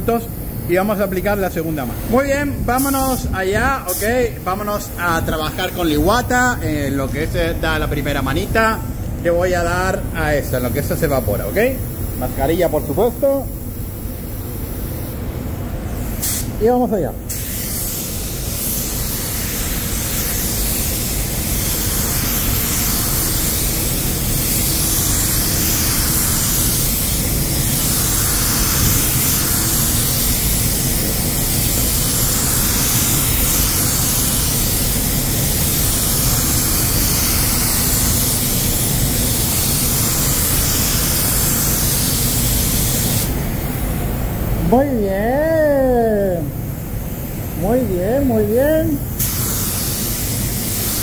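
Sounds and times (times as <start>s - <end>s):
spray gun hissing: 0.0s - 7.2s, 9.9s - 51.0s.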